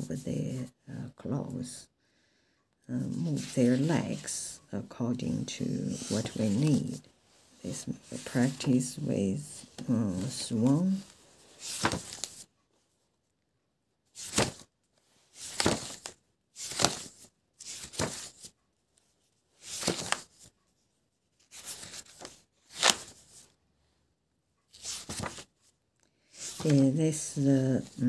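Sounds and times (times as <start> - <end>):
sketchbook pages turning: 3.0 - 12.5, 14.2 - 14.7, 15.3 - 18.6, 19.6 - 20.5, 21.4 - 23.5, 24.7 - 25.6, 26.3 - 28.0.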